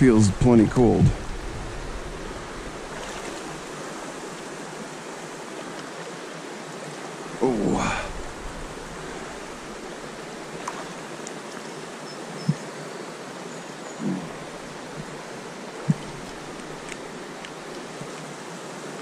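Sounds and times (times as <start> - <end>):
flowing stream water: 0.0 - 19.0
low thumps: 0.7 - 3.0.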